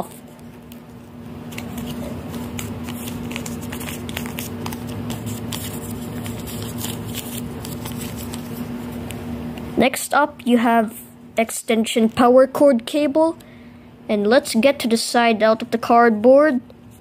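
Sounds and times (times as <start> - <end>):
paper rustling and crinkling: 0.0 - 8.9
steady low hum: 0.0 - 17.0.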